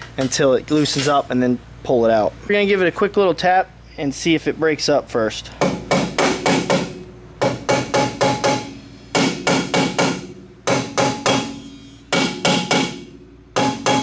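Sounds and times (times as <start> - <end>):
hammer striking metal drum: 5.6 - 14.0.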